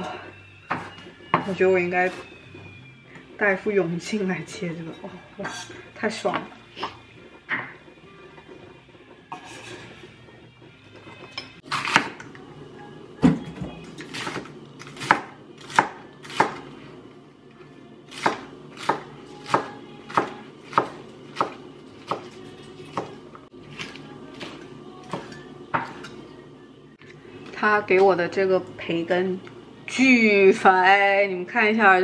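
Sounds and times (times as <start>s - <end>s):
knife chopping on cutting board: 14.1s - 16.6s, 18.1s - 23.2s.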